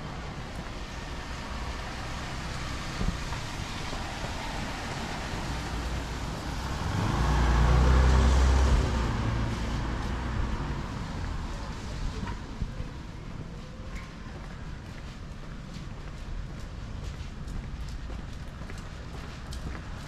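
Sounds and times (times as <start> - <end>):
vehicle passing on wet street: 0.0 - 14.8.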